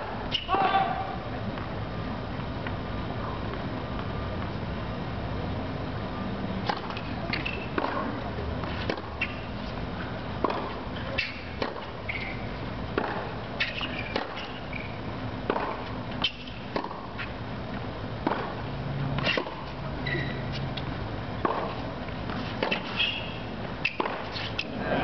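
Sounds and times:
shoe squeaks: 0.3 - 0.6, 7.3 - 7.8, 8.7 - 9.5, 11.0 - 12.6, 13.6 - 15.0, 19.2 - 20.7, 22.4 - 24.6
tennis ball bounces: 6.6 - 9.6, 10.2 - 24.7
tennis racket strikes: 10.4 - 12.4, 13.0 - 14.7, 15.5 - 17.2, 18.2 - 18.6, 19.2 - 19.8, 21.4 - 24.7.

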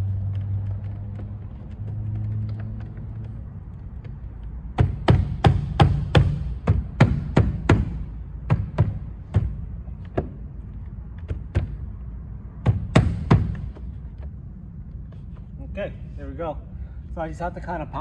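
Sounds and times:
hand thumping plastic door panel: 4.8 - 10.5, 11.2 - 11.9, 12.6 - 14.0.

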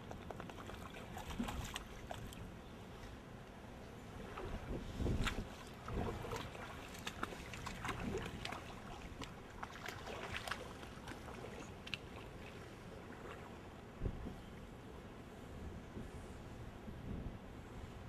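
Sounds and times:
wading steps splashing in water: 0.4 - 2.4, 4.3 - 13.5.

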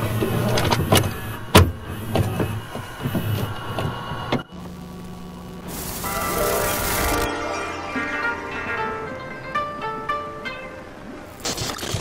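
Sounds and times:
steady low hum: 0.0 - 11.5
tape mechanism whirring: 5.6 - 7.3.

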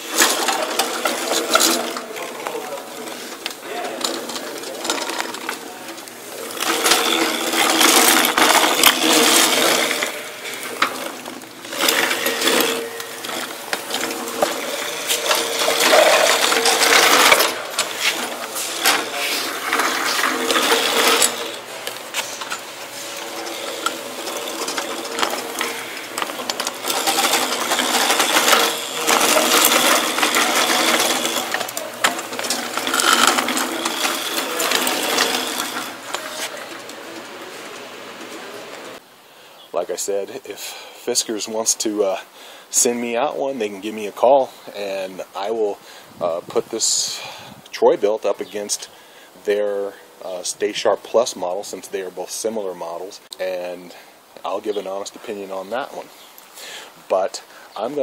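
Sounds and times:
push reel mower clicking whir: 0.0 - 38.9.

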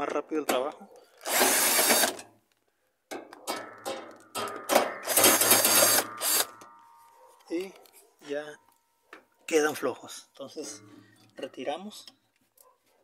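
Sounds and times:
cordless drill spinning bolts: 1.2 - 2.2, 5.0 - 6.5
sharp clicks and knocks: 3.1 - 6.8.

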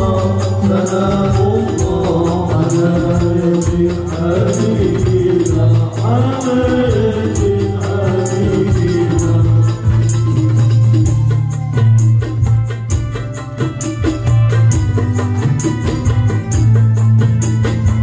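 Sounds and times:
person singing: 0.0 - 12.2
low bass: 0.0 - 18.0
percussion beat: 0.0 - 18.0.

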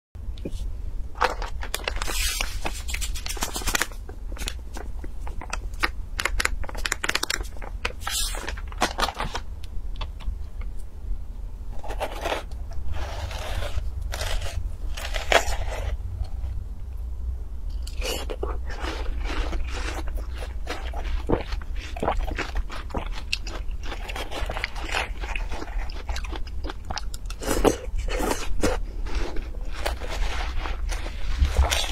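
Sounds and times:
plastic packet crackling: 1.2 - 9.4.

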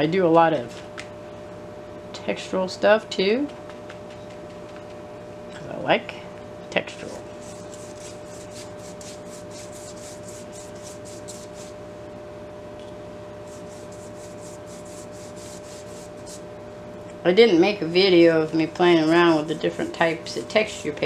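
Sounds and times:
paint scrubbed onto paper: 7.0 - 11.8, 13.5 - 16.4.

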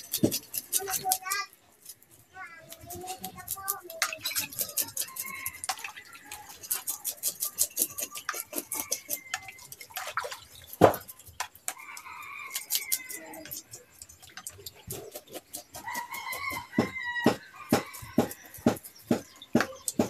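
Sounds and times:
small clicks and drips: 0.0 - 16.7
water splashing in basin: 3.8 - 17.2.

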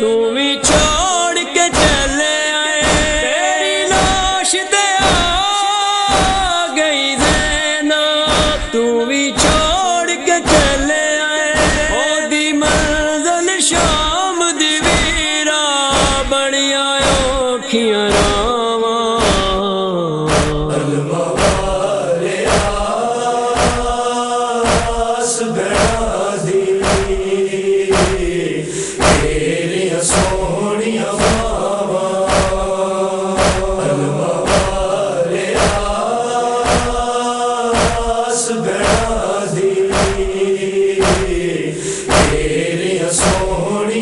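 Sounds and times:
chest-beating thumps: 0.7 - 1.1, 1.7 - 3.3, 3.9 - 4.4, 5.0 - 6.6, 7.2 - 7.7, 8.3 - 8.8, 9.4 - 11.0, 11.6 - 12.0, 12.6 - 14.2, 14.8 - 15.3, 15.9 - 16.4, 17.0 - 17.5, 18.1 - 18.6, 19.2 - 19.7, 20.3 - 20.8, 21.4 - 23.0, 23.6 - 30.6, 31.2 - 32.8, 33.4 - 43.6
voices chanting: 20.3 - 44.0.

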